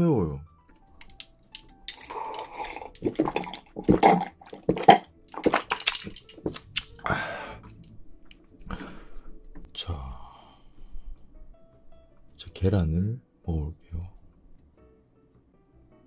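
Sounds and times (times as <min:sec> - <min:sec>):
person gulping a drink: 0:01.9 - 0:07.8
breathy exhale: 0:07.0 - 0:07.7, 0:08.7 - 0:09.4.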